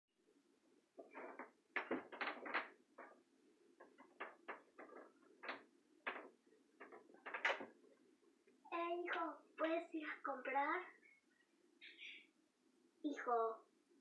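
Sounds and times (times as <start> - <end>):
soft rustles and knocks: 0.9 - 9.9.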